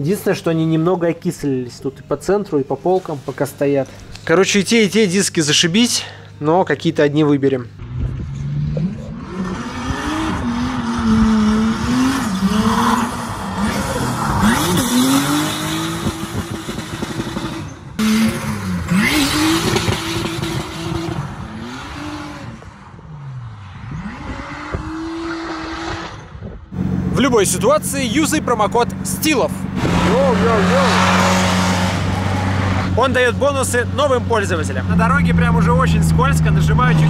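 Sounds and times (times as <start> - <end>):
car engine revving: 7.8 - 37.0.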